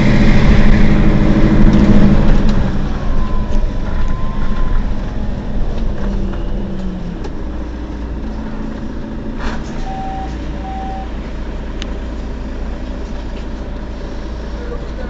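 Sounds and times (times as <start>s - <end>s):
bus engine idling: 0.0s - 15.0s
short beeps: 3.0s - 4.8s, 9.8s - 11.1s.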